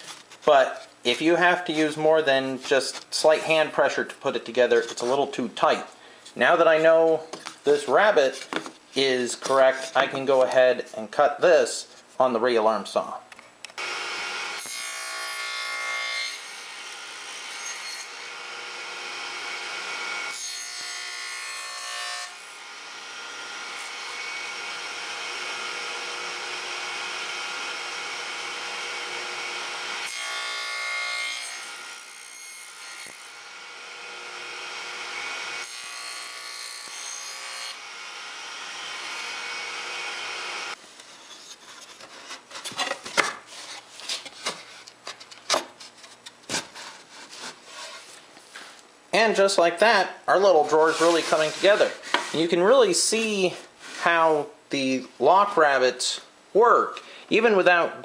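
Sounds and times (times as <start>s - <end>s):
radial arm saw cutting plywood: 13.8s - 40.8s.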